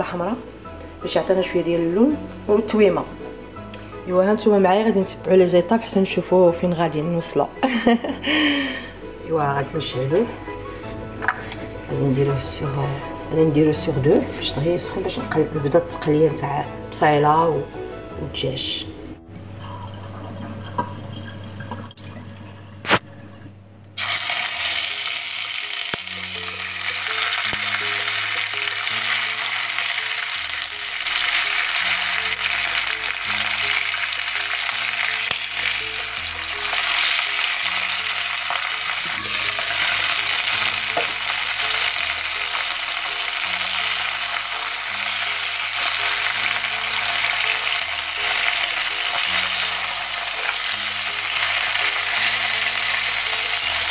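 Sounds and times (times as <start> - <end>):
soft background music: 0.0 - 53.9
chicken sizzling in hot oil: 24.0 - 53.9.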